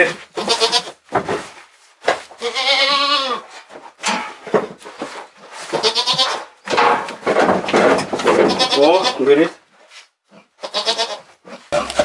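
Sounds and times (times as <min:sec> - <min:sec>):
goat bleating: 0:00.3 - 0:01.0, 0:02.4 - 0:03.5, 0:05.7 - 0:06.5, 0:08.4 - 0:09.3, 0:10.5 - 0:12.0.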